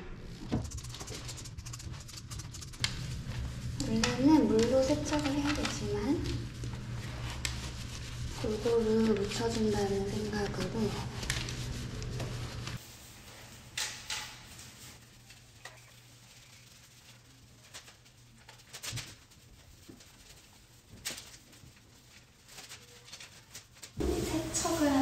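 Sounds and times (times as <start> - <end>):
wet wipe rubbing frame: 0.4 - 12.8.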